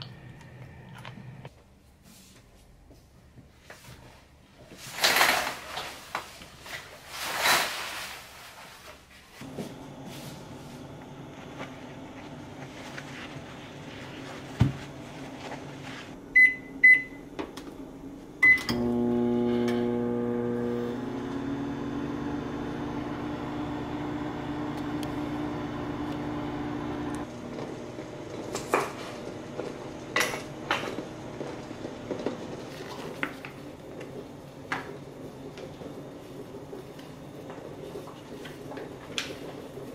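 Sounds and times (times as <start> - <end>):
microwave oven humming: 0.0 - 1.5, 9.4 - 38.0.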